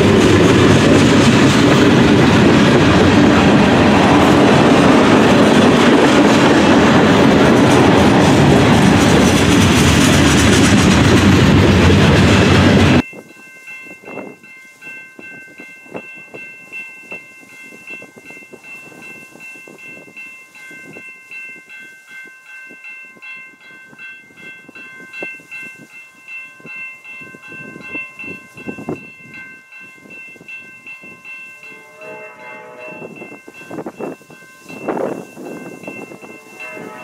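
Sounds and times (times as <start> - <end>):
crossing bell ringing: 0.0 - 37.0
train horn: 31.6 - 33.3, 36.0 - 37.0.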